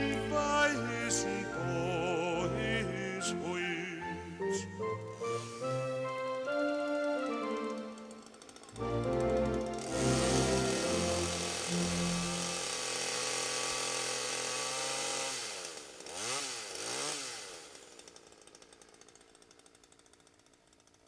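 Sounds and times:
keyboard orchestral chord: 0.0s - 13.4s
chainsaw revving and idling: 0.0s - 21.0s.

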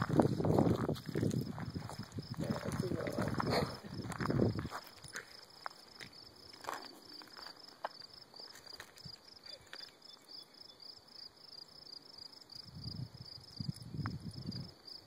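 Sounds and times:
footsteps on gravel and grass: 0.0s - 9.9s
crickets chirping: 0.0s - 15.0s.

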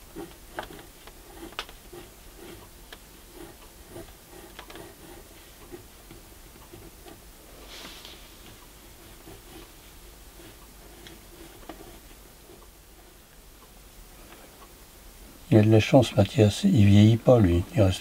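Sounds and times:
pencil scratching on paper: 0.0s - 13.2s.

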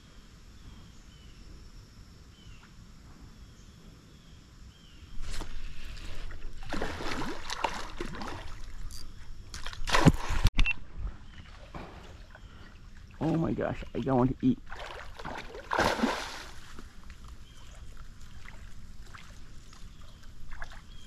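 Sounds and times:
fish thrashing and splashing: 5.4s - 8.9s, 14.6s - 17.1s.

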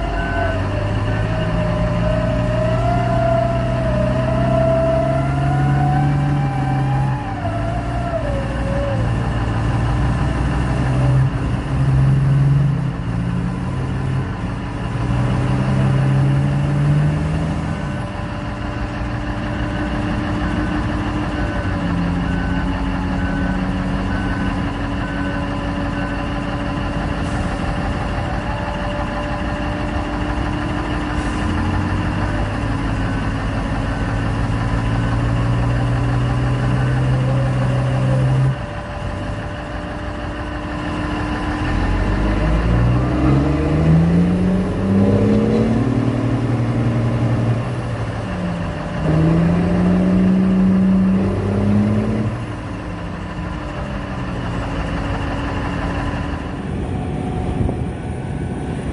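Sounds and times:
diesel engine revving: 0.0s - 58.9s.

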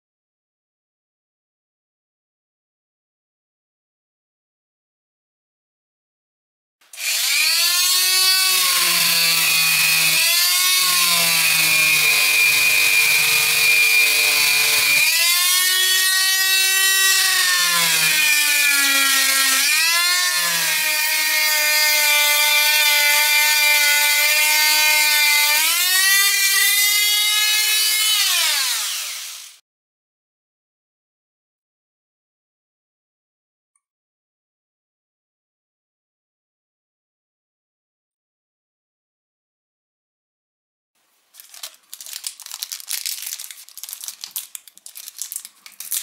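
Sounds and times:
rotary tool whining: 6.9s - 22.7s.

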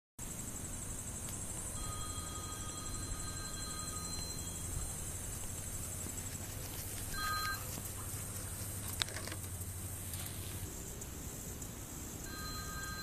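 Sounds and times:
outdoor background hiss: 0.2s - 13.0s
two-tone electronic beep: 1.8s - 4.9s.

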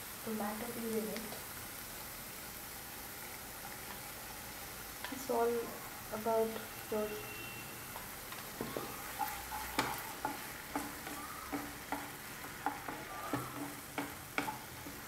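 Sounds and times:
food sizzling: 0.0s - 15.0s
wooden spatula scraping frying pan: 7.9s - 15.0s.

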